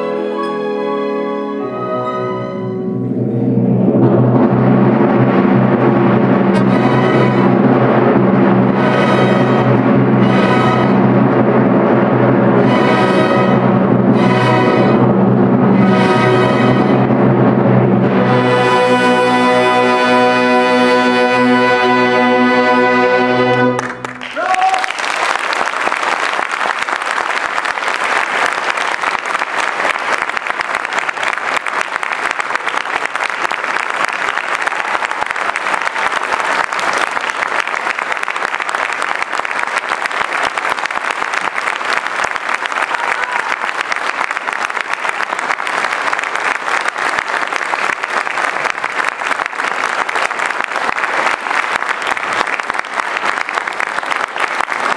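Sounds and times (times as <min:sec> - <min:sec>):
audience applauding: 0:22.8 - 0:54.9.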